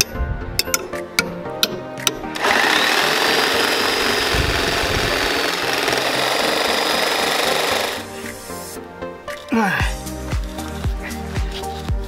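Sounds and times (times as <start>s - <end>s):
reciprocating saw cutting rubber: 2.3s - 8.8s.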